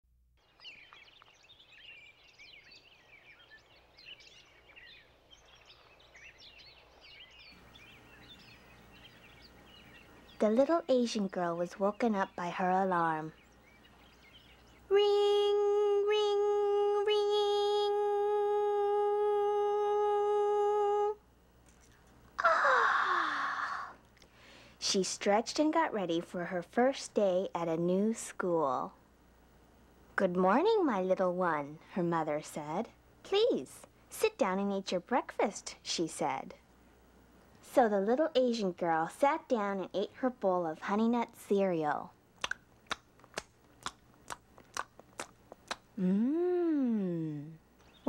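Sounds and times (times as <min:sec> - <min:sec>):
small birds chirping: 0:00.4 - 0:16.4, 0:46.8 - 0:48.0
person yawning: 0:22.4 - 0:24.0, 0:46.0 - 0:47.6.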